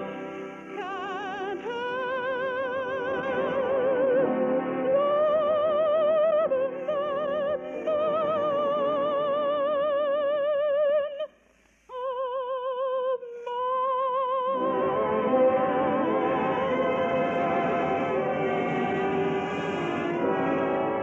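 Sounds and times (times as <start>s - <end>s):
orchestral music on radio: 0.0s - 9.4s, 14.6s - 21.0s.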